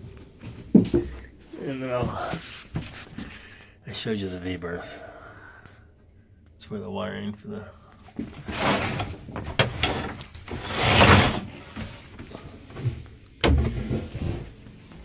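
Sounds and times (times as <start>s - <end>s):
rustling and scraping: 0.0s - 3.4s, 8.0s - 15.0s.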